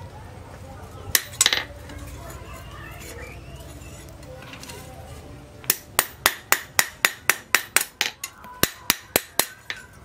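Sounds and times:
hammer striking metal on anvil: 5.6 - 9.9.

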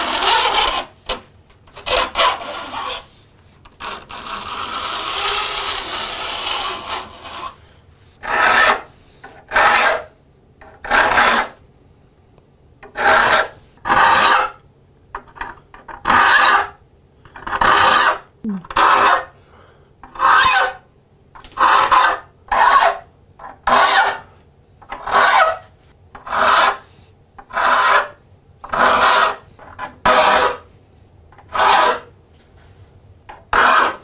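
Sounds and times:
file rasping on saw teeth: 0.0 - 3.2, 3.8 - 7.6, 8.2 - 10.1, 10.8 - 11.6, 12.9 - 14.6, 20.0 - 20.8, 23.6 - 24.3, 24.9 - 25.6, 26.2 - 30.7, 31.5 - 32.1, 33.5 - 34.0.

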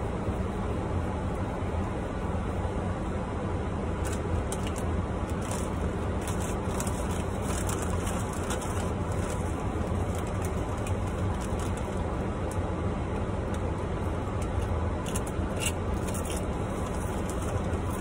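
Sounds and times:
low rumble inside a car: 0.0 - 18.0
plastic snack bag crinkling: 4.0 - 12.0.

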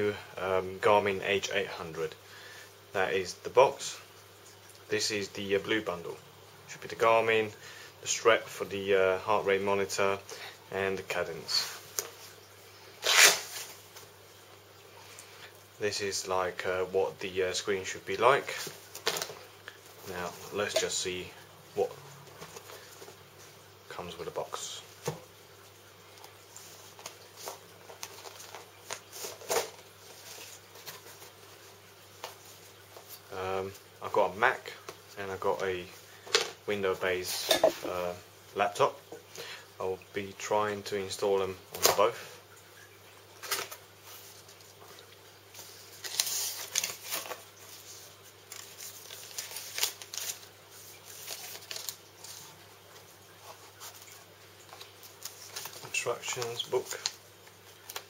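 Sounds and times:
cardboard and paper rustling: 26.7 - 33.2, 45.6 - 57.2.

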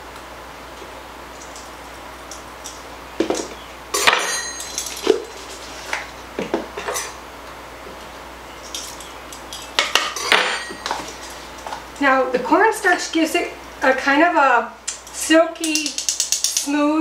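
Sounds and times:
metal spoon clinking and scraping: 4.0 - 6.0, 8.6 - 11.4.

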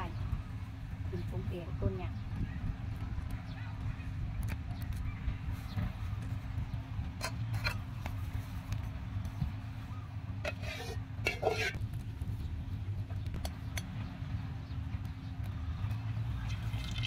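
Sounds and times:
metal spatula scraping wok: 7.2 - 7.9, 10.4 - 11.8.

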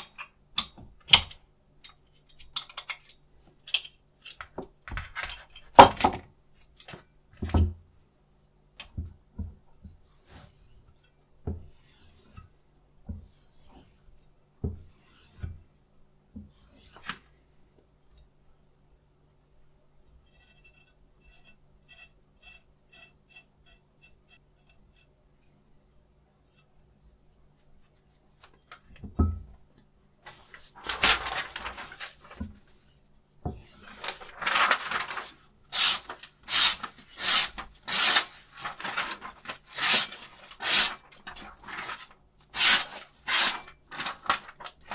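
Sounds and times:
knife on sharpening stone: 20.4 - 25.1
knife slicing paper: 33.7 - 44.9.

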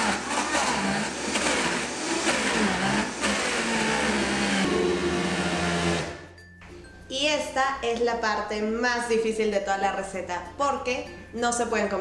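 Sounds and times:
blender motor running: 0.0 - 6.3.

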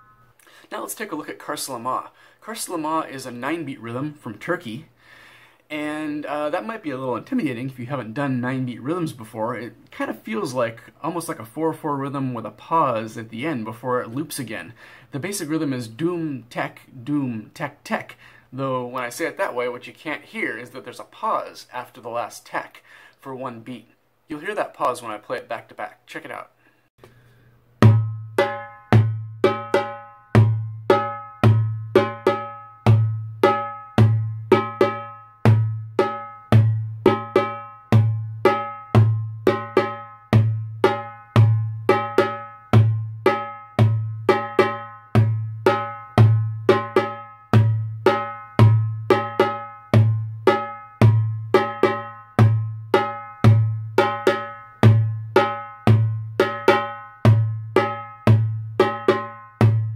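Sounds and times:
hand drum rhythm: 27.7 - 59.9.

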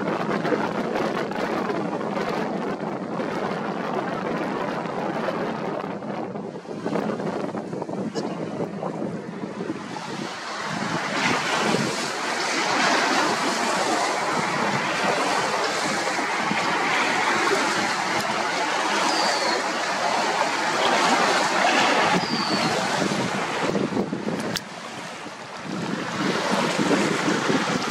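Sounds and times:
wind gusting across microphone: 0.0 - 27.9
water lapping: 6.5 - 27.9.

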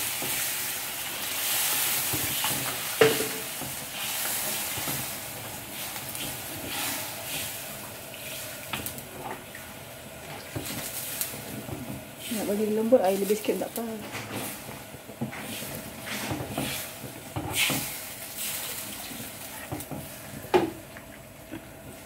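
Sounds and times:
food sizzling in a wok: 0.0 - 20.8
spatula knocking against wok: 3.0 - 3.7.

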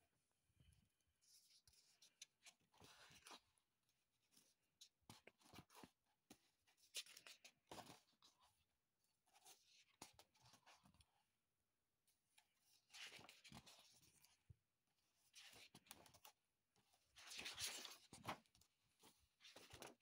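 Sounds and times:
paper pages rustling and turning: 1.2 - 3.6, 4.3 - 8.5, 12.7 - 14.4, 15.3 - 16.4, 17.0 - 20.0.

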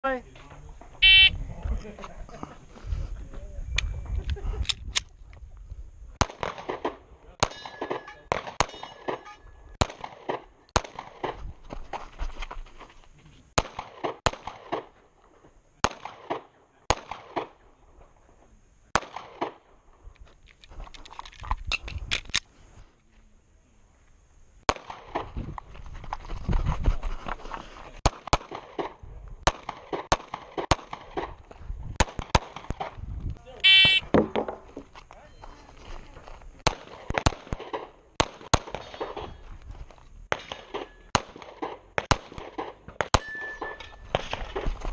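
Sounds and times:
pistol gunshots: 6.2 - 11.2, 13.6 - 14.9, 15.8 - 17.6, 19.0 - 19.6, 40.3 - 43.3.

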